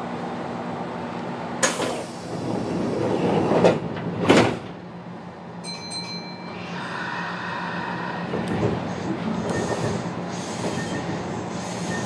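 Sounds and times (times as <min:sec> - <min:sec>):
train doors closing: 0:01.6 - 0:05.1, 0:07.6 - 0:12.0.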